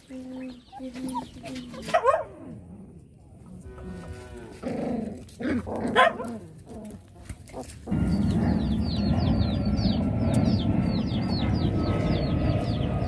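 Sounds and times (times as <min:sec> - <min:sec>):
puppies yipping and whining: 0:00.3 - 0:02.2
rushing background noise: 0:07.8 - 0:13.0.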